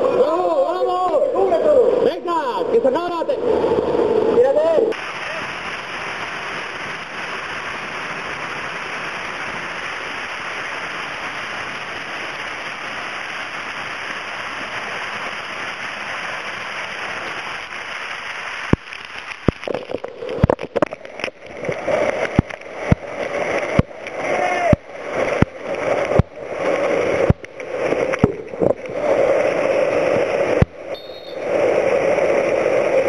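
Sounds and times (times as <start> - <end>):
waterfall rushing: 3.4 - 33.0.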